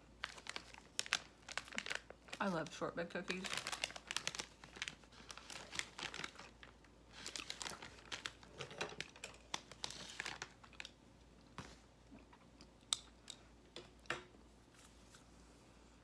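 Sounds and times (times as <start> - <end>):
packaging crinkling: 0.0 - 11.0
crisp cookie bitten and chewed: 4.8 - 13.6.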